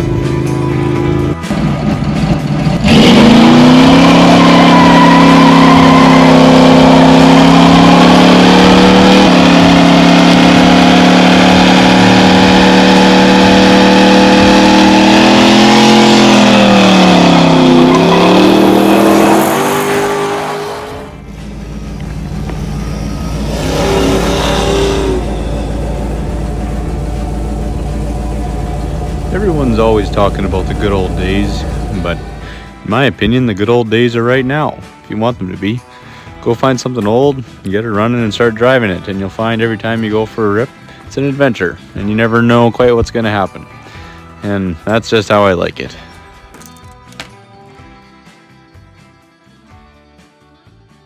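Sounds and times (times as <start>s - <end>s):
engine revving high: 0.0s - 32.8s
engine running quietly: 21.2s - 32.8s.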